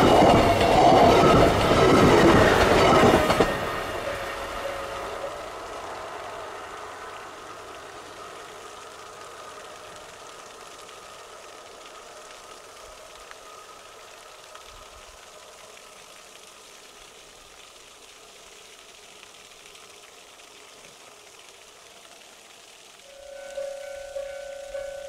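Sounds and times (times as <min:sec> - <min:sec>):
faint whine: 0:00.0 - 0:14.3, 0:23.1 - 0:25.0
steady hiss: 0:00.0 - 0:25.0
level-crossing alarm bell ringing: 0:23.1 - 0:25.0.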